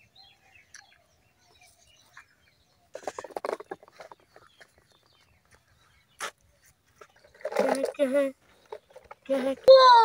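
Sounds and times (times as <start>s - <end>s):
plastic toys clattering: 2.9s - 5.1s, 7.0s - 10.0s.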